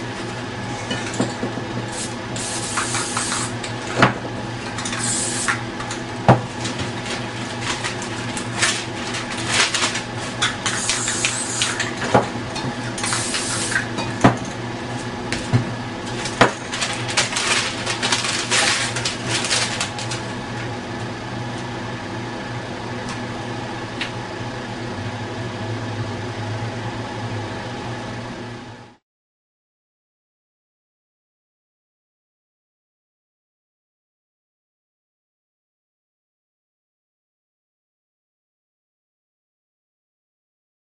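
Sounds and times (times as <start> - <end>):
steady hum: 0.0 - 29.0
aerosol spray can hissing: 2.0 - 3.5, 5.0 - 5.5, 10.8 - 11.6, 13.1 - 13.8.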